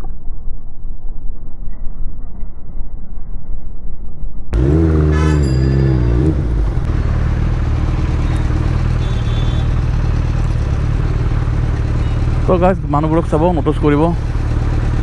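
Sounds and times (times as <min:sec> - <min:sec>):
motorcycle engine rumbling: 0:04.6 - 0:15.0.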